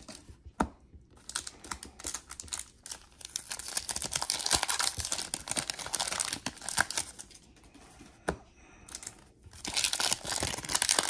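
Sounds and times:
card wrappers tearing and crinkling: 1.2s - 7.4s, 8.9s - 11.0s.

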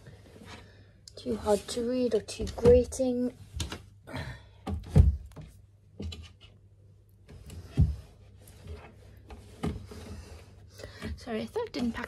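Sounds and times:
objects thumping down: 4.6s - 6.2s.

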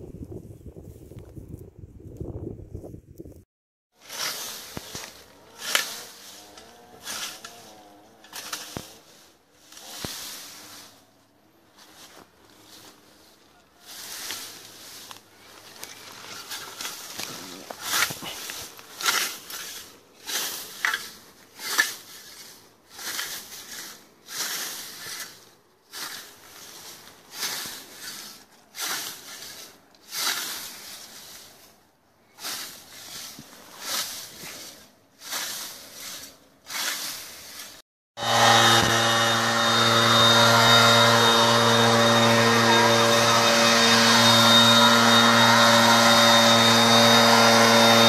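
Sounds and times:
scythe swishing through grass: 4.0s - 37.8s
small engine running: 38.2s - 48.0s.

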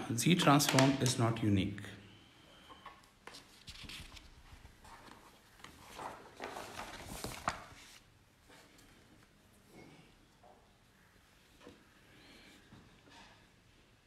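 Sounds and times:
paper rustling and sliding: 3.2s - 8.8s.

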